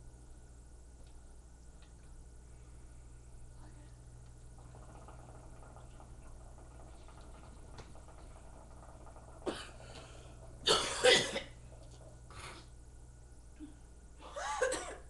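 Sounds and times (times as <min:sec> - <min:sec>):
person coughing: 0:10.7 - 0:11.6, 0:13.6 - 0:15.0.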